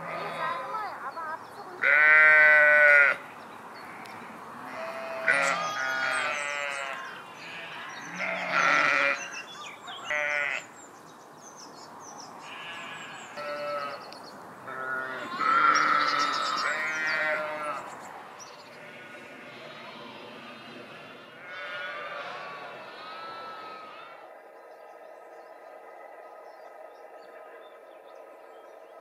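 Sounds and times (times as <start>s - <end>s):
sheep bleating: 0.0s - 1.0s, 1.8s - 3.2s, 3.8s - 9.4s, 10.0s - 10.7s, 12.4s - 14.1s, 14.7s - 17.9s, 18.7s - 24.3s.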